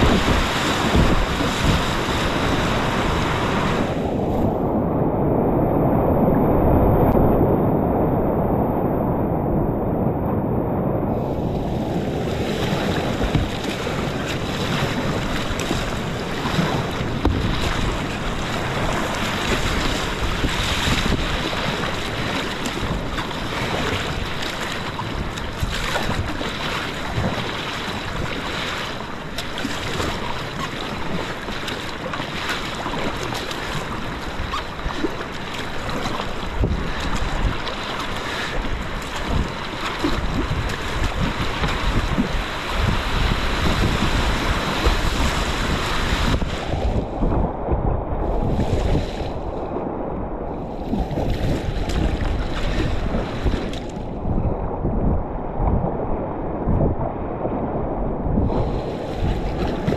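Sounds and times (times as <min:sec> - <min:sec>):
rushing whitewater: 0:00.0 - 0:04.7, 0:11.4 - 0:47.4
wind buffeting microphone: 0:00.0 - 0:59.9.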